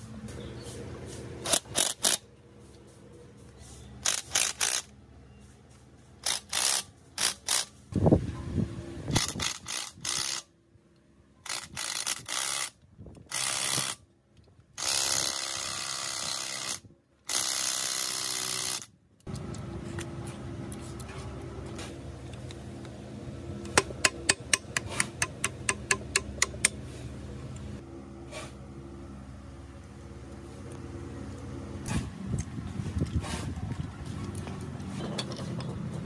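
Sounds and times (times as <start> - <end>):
steady hum: 19.3 - 36.0.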